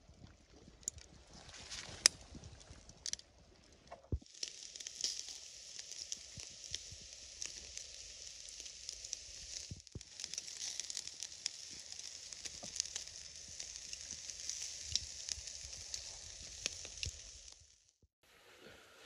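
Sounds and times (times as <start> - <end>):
meat sizzling on grill: 4.1 - 18.0.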